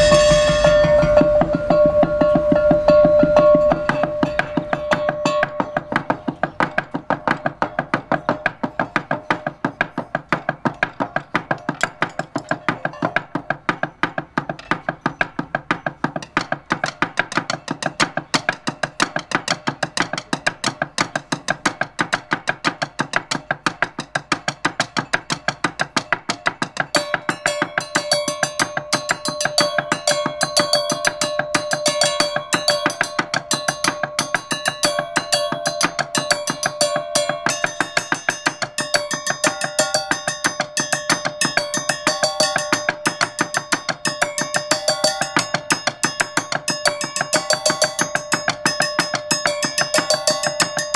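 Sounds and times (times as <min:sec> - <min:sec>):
high ringing notes: 0:00.0 - 0:13.3, 0:25.0 - 0:50.9
mallets striking percussion bars: 0:00.0 - 0:50.9.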